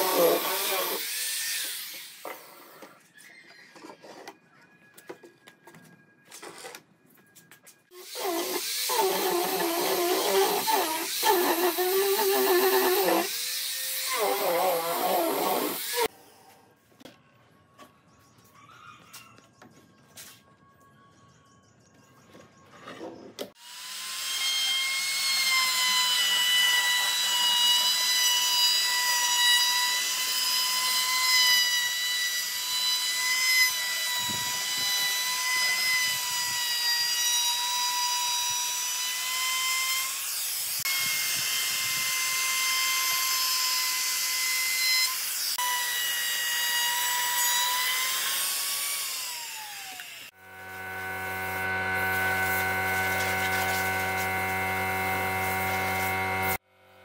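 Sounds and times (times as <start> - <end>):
router whining cutting wood: 0.0 - 2.9, 23.5 - 56.6.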